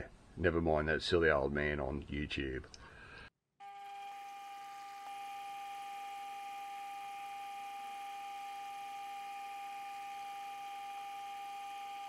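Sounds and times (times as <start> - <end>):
lathe motor whining: 3.6 - 12.0.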